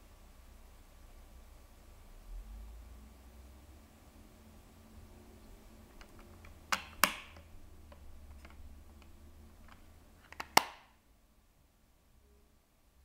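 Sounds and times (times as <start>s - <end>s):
plastic case snapping shut: 10.3s - 10.9s.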